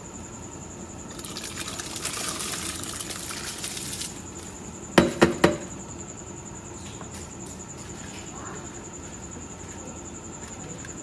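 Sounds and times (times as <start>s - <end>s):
bowl knocking on metal pot: 5.0s - 5.7s.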